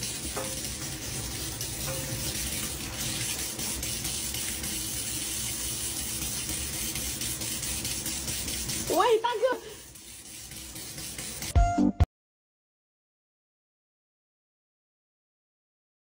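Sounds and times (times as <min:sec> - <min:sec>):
tap running into metal sink: 0:00.0 - 0:08.9
cat pawing at falling water: 0:00.0 - 0:11.5.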